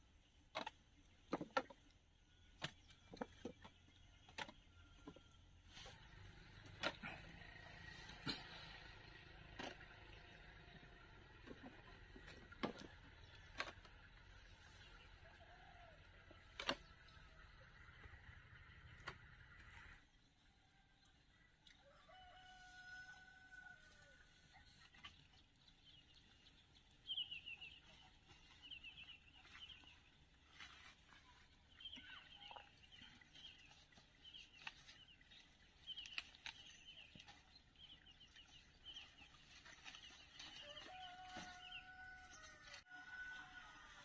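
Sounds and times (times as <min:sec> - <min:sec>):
rooster crowing: 0:21.8 - 0:24.2, 0:40.6 - 0:44.0.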